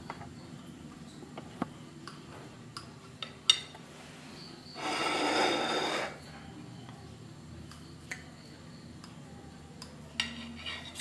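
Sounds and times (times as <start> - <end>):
knife scraping plate: 4.8 - 6.3.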